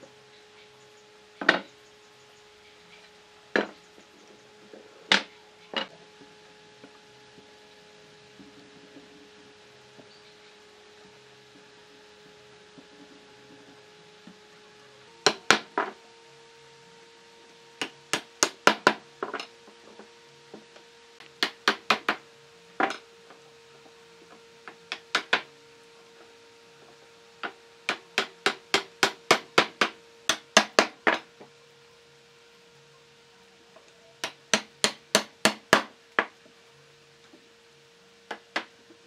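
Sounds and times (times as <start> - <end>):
wooden mallet knocking: 15.2 - 16.0.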